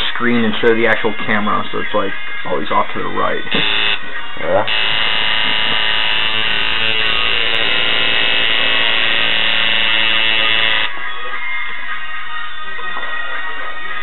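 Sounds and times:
rock music: 0.0s - 14.0s
tattoo machine buzzing: 3.5s - 4.0s, 4.7s - 10.9s.

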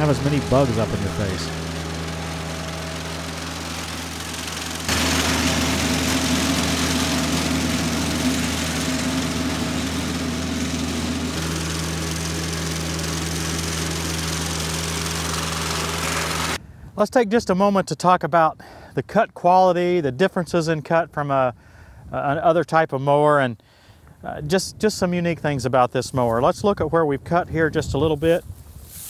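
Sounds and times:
mower cutting tall grass: 0.0s - 16.6s
tractor diesel engine running: 0.0s - 16.6s.

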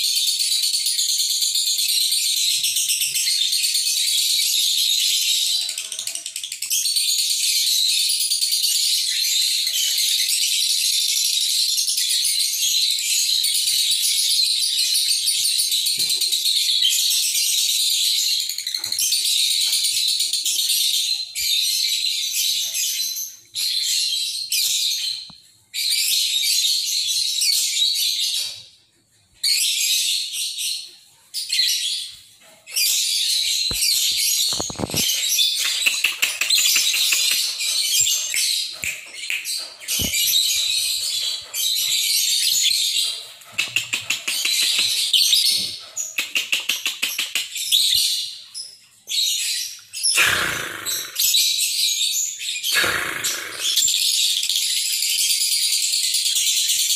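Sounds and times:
lovebird chattering song: 32.8s - 48.2s, 49.2s - 56.8s.

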